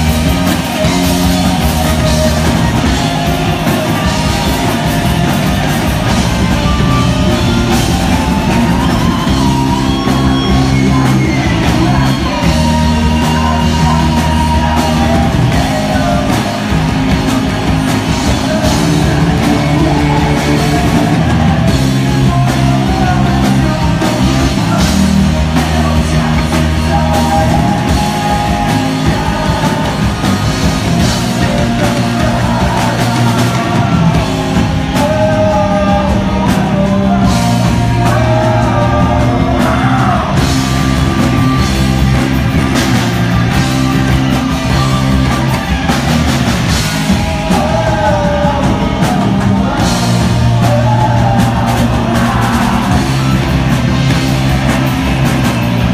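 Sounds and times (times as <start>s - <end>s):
bass guitar: 0.0s - 55.9s
drum kit: 0.0s - 55.9s
electric guitar: 0.0s - 55.9s
person singing lead vocal: 0.0s - 55.9s.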